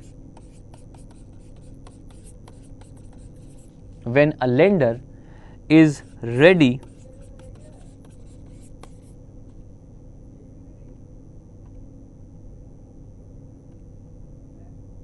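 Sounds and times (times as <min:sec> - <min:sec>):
stylus tapping and scratching on tablet: 0:00.0 - 0:04.2, 0:05.7 - 0:09.6
low room hum: 0:00.0 - 0:15.0.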